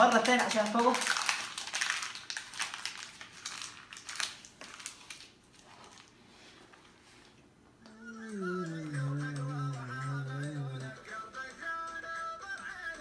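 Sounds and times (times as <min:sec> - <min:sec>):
paper rustling and crinkling: 0:00.0 - 0:07.4.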